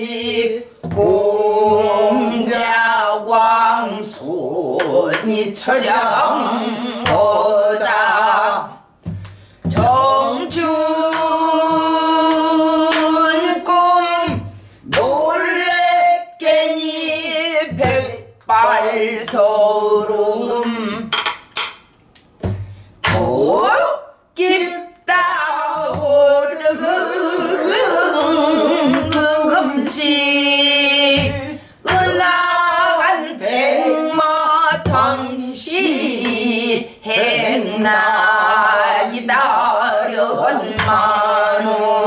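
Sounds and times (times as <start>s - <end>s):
woman singing strained held notes: 0.0s - 8.8s, 23.1s - 42.0s
sharp knocks: 21.1s - 23.3s, 31.1s - 32.5s.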